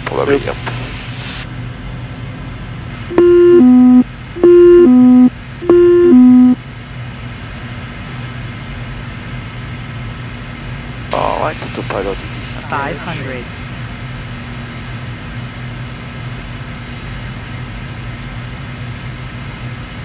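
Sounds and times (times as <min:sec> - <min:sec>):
jet cabin drone: 0:02.9 - 0:06.7, 0:14.4 - 0:20.0
two-tone alert chimes: 0:03.1 - 0:06.6.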